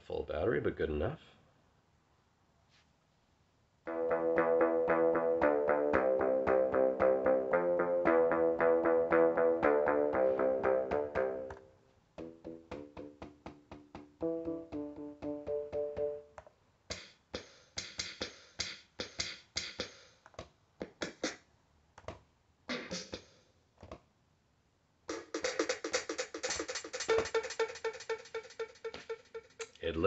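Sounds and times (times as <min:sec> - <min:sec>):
repeated synth notes: 0:03.9 - 0:11.6, 0:12.2 - 0:16.4, 0:25.1 - 0:29.7
drum hits: 0:12.2 - 0:14.4, 0:25.1 - 0:29.2.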